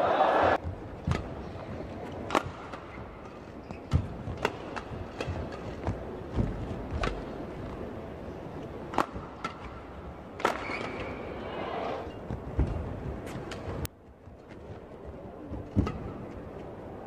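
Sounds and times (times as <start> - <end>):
racket hitting shuttlecock: 0.6 - 7.2, 8.9 - 11.3.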